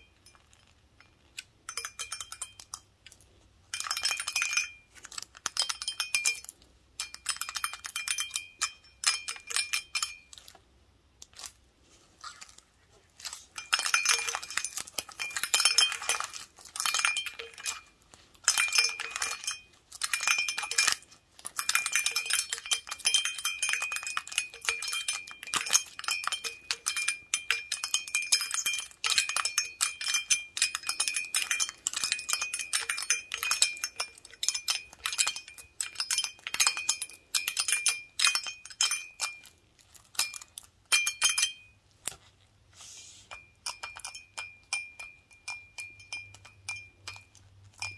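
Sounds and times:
toothpicks tapping a glass: 1.4s - 3.2s, 3.8s - 10.5s, 13.6s - 39.6s, 40.2s - 41.7s, 43.3s - 47.9s.

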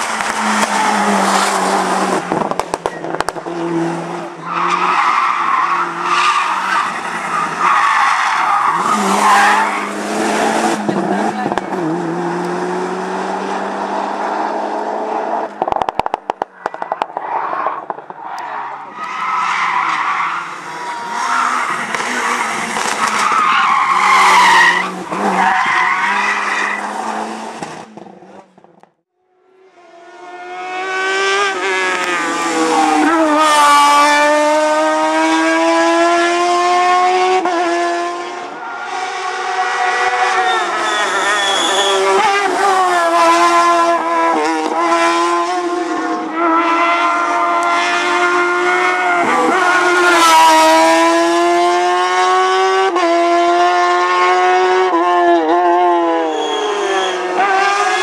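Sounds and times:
race car engine revving through gears: 8.4s - 16.1s, 29.5s - 58.0s.

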